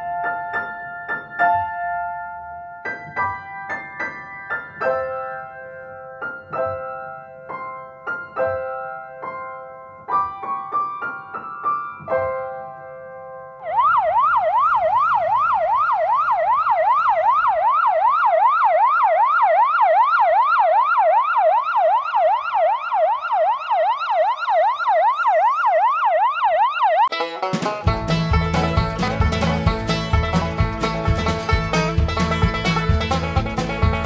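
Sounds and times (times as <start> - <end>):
piano chord: 0.0 - 13.6
ambulance siren yelping: 13.6 - 27.1.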